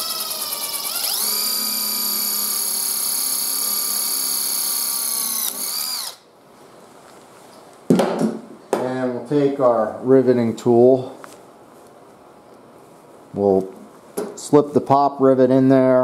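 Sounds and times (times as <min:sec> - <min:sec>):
cordless drill whining: 0:00.0 - 0:06.2.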